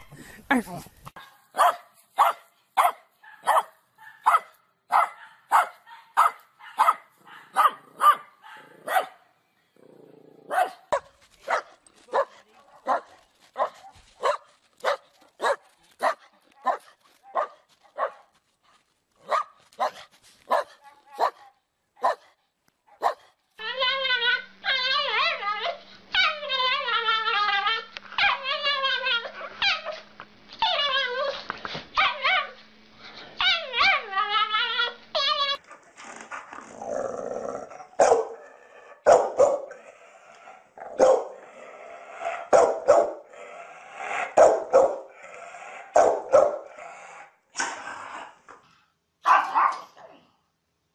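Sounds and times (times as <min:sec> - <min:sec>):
dog barking sharply: 0:01.2 - 0:09.2, 0:38.0 - 0:38.4, 0:39.1 - 0:39.7, 0:42.5 - 0:43.2, 0:44.4 - 0:45.0, 0:46.0 - 0:46.6, 0:49.2 - 0:49.9
dog barking irregularly: 0:01.2 - 0:09.3, 0:10.5 - 0:18.2, 0:19.2 - 0:22.3, 0:22.9 - 0:23.3, 0:38.0 - 0:38.4, 0:39.0 - 0:39.7, 0:41.0 - 0:41.4, 0:42.5 - 0:43.2, 0:44.4 - 0:45.1, 0:46.0 - 0:46.7, 0:49.2 - 0:50.0
small dog howling: 0:23.6 - 0:30.0, 0:30.6 - 0:31.4.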